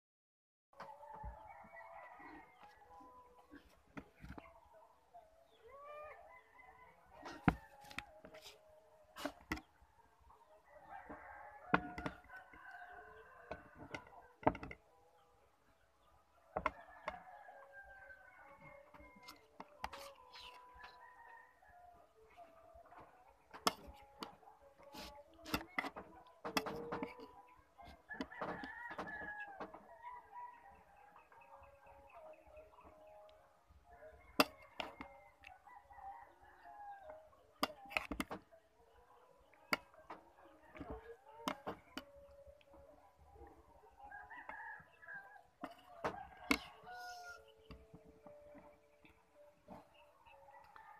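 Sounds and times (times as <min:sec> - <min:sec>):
rooster crowing: 0:00.8 - 0:03.4, 0:10.6 - 0:14.7, 0:16.6 - 0:22.1, 0:24.8 - 0:31.7, 0:33.9 - 0:37.2, 0:44.0 - 0:47.6
dishes clinking on a table: 0:25.5 - 0:27.3.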